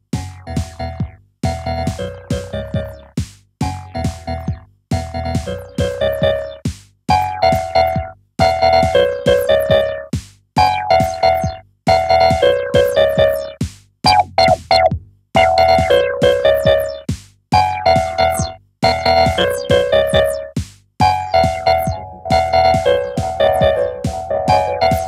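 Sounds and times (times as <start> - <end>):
plucked synth notes: 0.5 - 3.0, 5.4 - 6.6, 7.2 - 25.0
falling low synth tone: 21.3 - 25.0.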